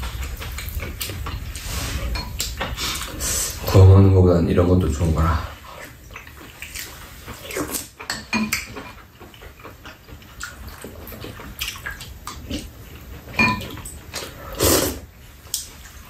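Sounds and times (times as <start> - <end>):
eating noises: 0.0 - 16.0
utensils clinking on bowls: 8.0 - 9.0, 13.3 - 13.9.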